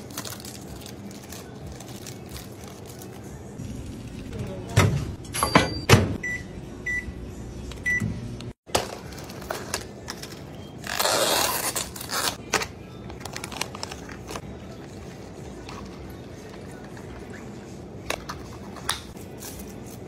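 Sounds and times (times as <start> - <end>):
microwave keypad beeps: 5.4 - 7.2.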